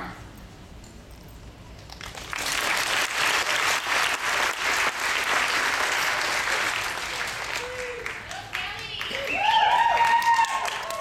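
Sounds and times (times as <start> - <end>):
audience applauding: 1.9 - 11.0.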